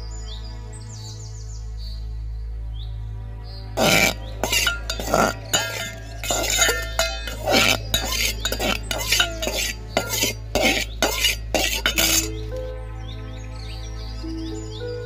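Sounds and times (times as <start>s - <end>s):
spoon scraping metal pan: 3.8s - 12.5s
soft background music: 12.3s - 15.0s.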